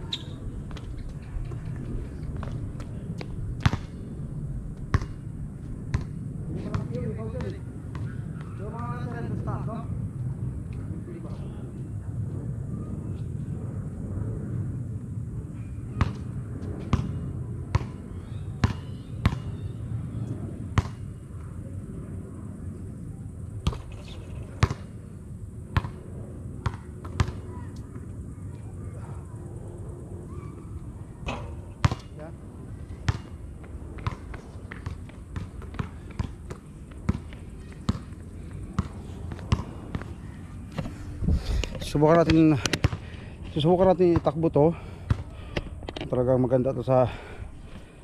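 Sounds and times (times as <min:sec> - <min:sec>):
basketball bouncing on concrete: 0:00.1 - 0:04.0, 0:04.8 - 0:05.2, 0:05.9 - 0:08.6, 0:16.8 - 0:18.0, 0:18.6 - 0:19.6, 0:20.8 - 0:21.0, 0:24.6 - 0:24.9, 0:26.6 - 0:28.0, 0:31.3 - 0:32.2, 0:33.1 - 0:40.2, 0:42.2 - 0:43.1, 0:45.1 - 0:45.7.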